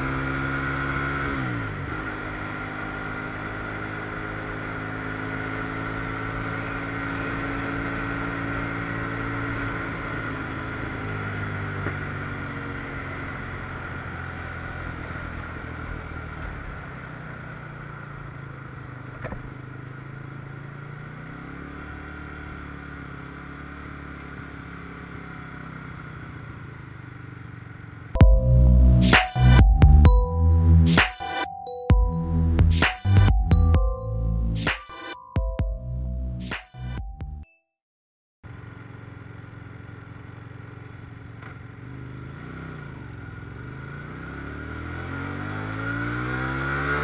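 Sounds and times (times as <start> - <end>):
motorcycle engine: 0.0 - 34.8, 38.4 - 47.0
loud music: 28.2 - 37.4.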